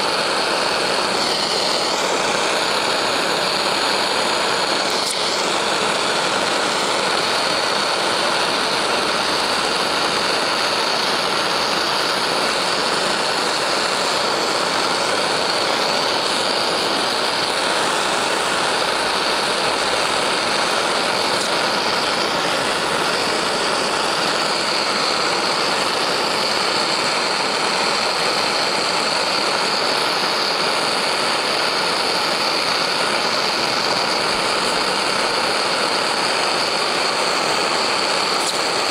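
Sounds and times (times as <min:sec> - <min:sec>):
gas torch flame hissing: 0:00.0 - 0:38.9.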